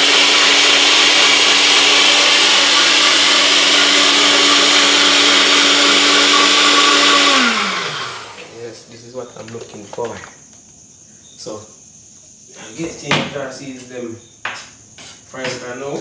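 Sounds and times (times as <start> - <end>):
blender motor winding down: 0.0 - 8.7
blender whirring: 0.0 - 8.7.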